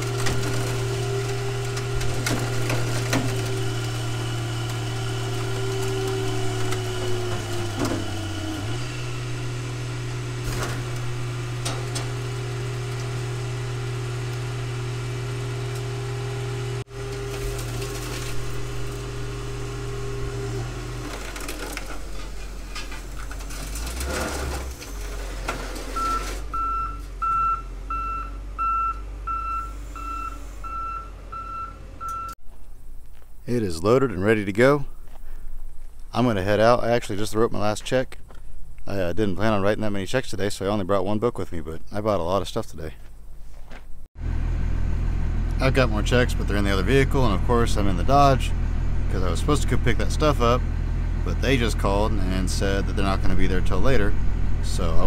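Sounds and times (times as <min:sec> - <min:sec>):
car body cracking and creaking: 0:00.0 - 0:08.8, 0:10.4 - 0:13.2, 0:17.2 - 0:19.1, 0:21.0 - 0:26.4
hydraulic power unit humming: 0:00.0 - 0:32.4
reversing alarm beeping: 0:25.9 - 0:32.4.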